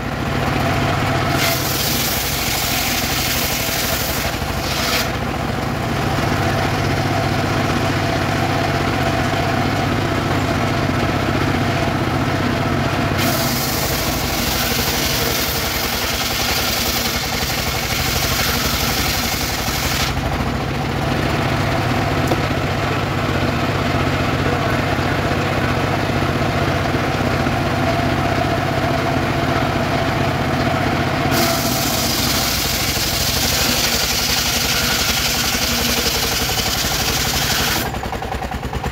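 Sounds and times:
table saw running: 0.0 - 38.9
saw blade cutting wood: 1.2 - 5.3, 13.2 - 20.3, 31.3 - 38.0.

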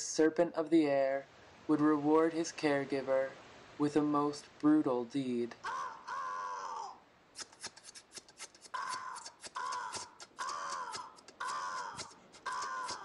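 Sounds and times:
crows cawing: 5.6 - 7.0, 8.7 - 13.0
rapid sharp clicks: 7.4 - 13.0.

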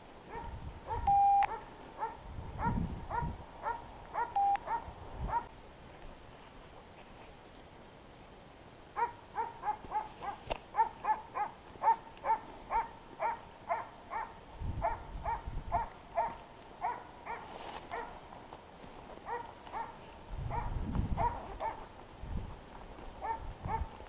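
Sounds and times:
dog barking: 0.3 - 5.5, 9.0 - 18.2, 19.2 - 21.8, 23.2 - 23.9.

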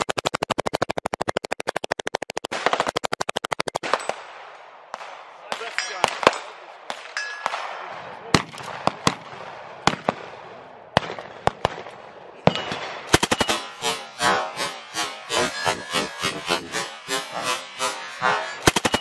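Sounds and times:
single gunshots: 3.8 - 10.4
suppressed machine gun automatic fire: 13.1 - 13.6, 18.6 - 19.0.

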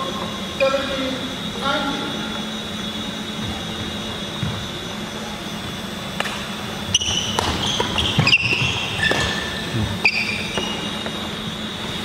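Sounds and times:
sports hall hum: 0.0 - 12.0
racket hitting shuttlecock: 6.2 - 11.2
shoes squeaking on wooden floor: 6.9 - 11.3.

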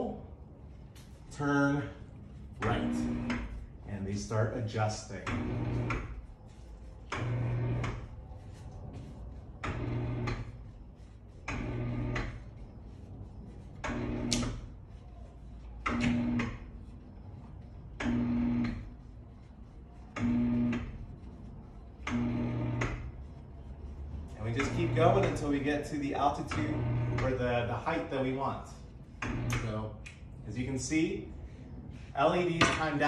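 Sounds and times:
lift motor humming: 2.5 - 3.8, 5.2 - 6.3, 7.0 - 10.8, 11.4 - 12.9, 13.8 - 14.8, 15.8 - 16.7, 18.0 - 19.0, 20.1 - 21.0, 22.0 - 23.2, 24.3 - 25.7, 26.4 - 27.6, 29.2 - 29.8.

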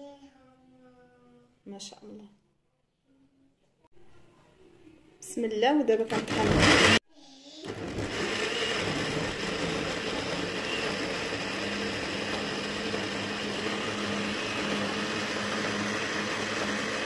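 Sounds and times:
blender motor whirring: 6.1 - 7.0, 7.6 - 17.0.

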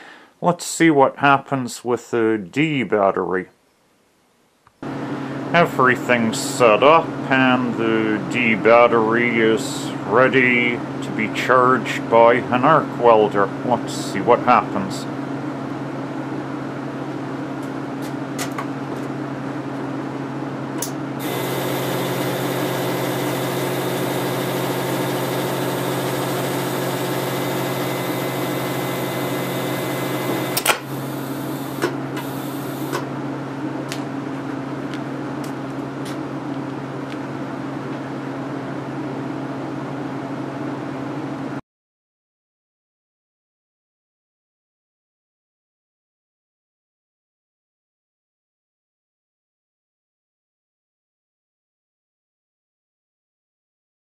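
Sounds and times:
arc welder humming: 20.8 - 33.1
loud hiss: 21.2 - 33.0.

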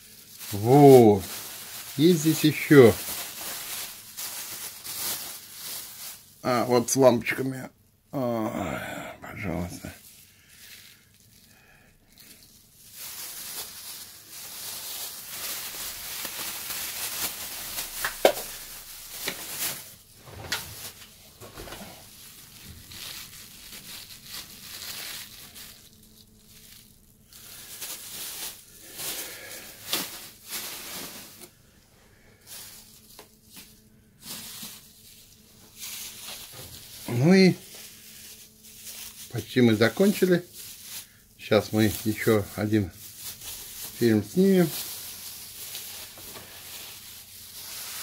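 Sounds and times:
plastic bags crinkling: 0.0 - 7.6, 9.5 - 48.0.

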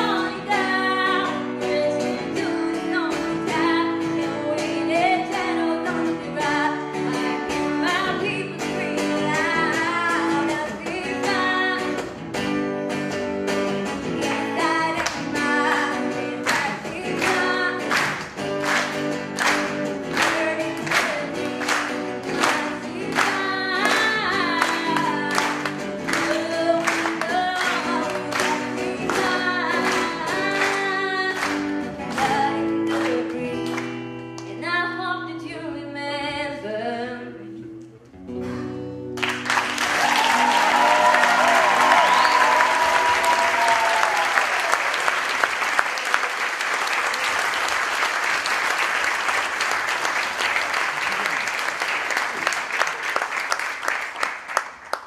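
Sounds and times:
woman singing: 0.0 - 12.2, 13.8 - 18.2, 20.0 - 37.7
strummed acoustic guitar: 0.0 - 34.4, 37.6 - 39.4
audience applause: 17.9 - 24.0, 39.2 - 55.0.

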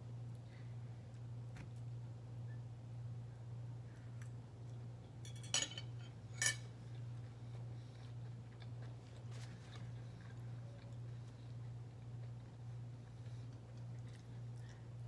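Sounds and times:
steady low hum: 0.0 - 15.0
fork clinking on plate: 5.3 - 6.7.

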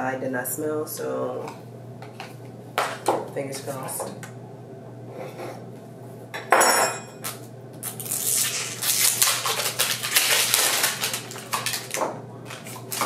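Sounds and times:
packaging rustling: 7.8 - 13.0.

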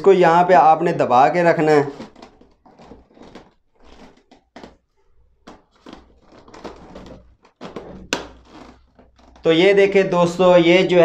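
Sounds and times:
faint plastic rubbing: 1.6 - 10.0
plastic knocks and clicks: 5.4 - 9.5.

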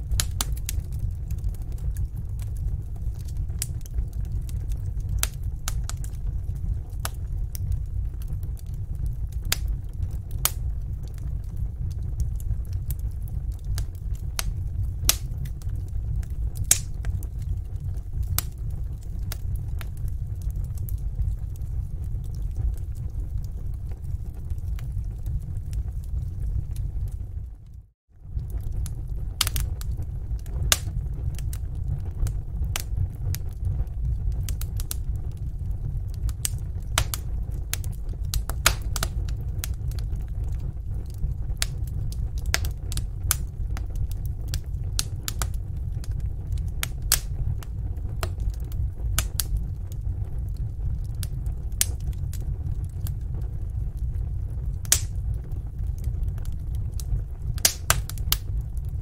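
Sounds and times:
fire pops and snaps: 0.0 - 59.0
steady low rumble: 0.0 - 59.0
wood fire crackling: 0.0 - 59.0.

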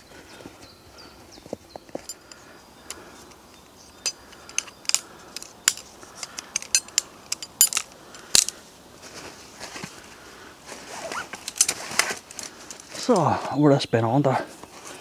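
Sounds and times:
metal frame clicking and clinking: 4.0 - 8.6.

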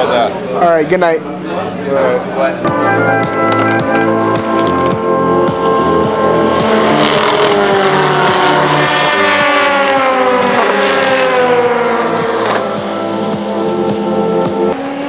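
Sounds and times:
race car passing at speed: 3.4 - 15.0.

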